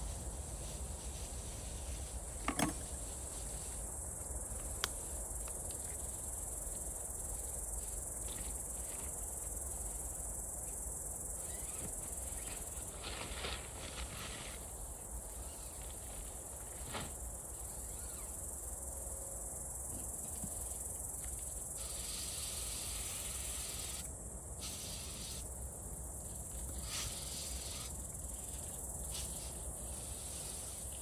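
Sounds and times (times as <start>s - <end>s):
insects chirring: 0.1s - 31.0s.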